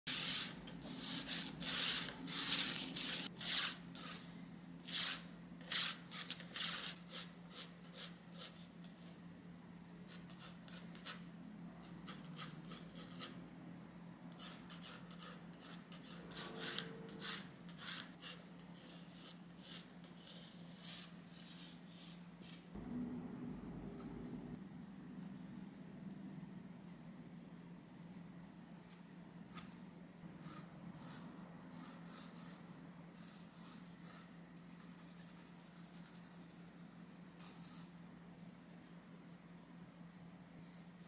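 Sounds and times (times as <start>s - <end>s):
pencil scratching on paper: 0.1s - 9.2s, 11.9s - 13.4s, 14.3s - 22.6s, 30.4s - 38.0s
faint low hum: 0.2s - 41.0s.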